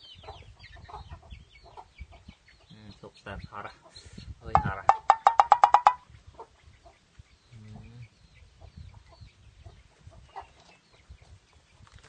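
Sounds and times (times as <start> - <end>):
chicks clucking and chirping: 0.0 - 12.0
low chicken call: 4.8 - 6.0.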